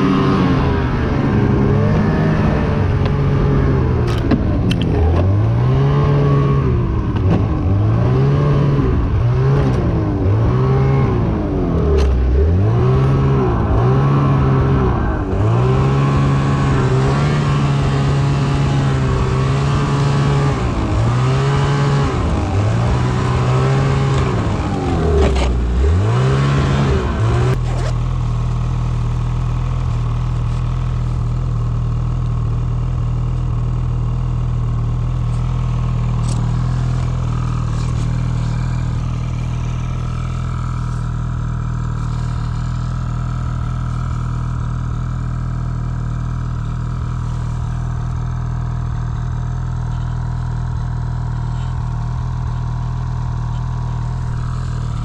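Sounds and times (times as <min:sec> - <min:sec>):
snowmobile engine revving: 0:00.0 - 0:31.3, 0:34.6 - 0:50.7.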